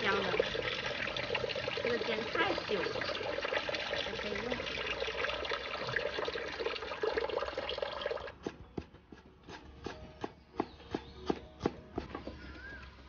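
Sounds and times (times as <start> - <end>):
water running from a tap: 0.0 - 8.4
cleaver chopping on wooden board: 8.4 - 12.6.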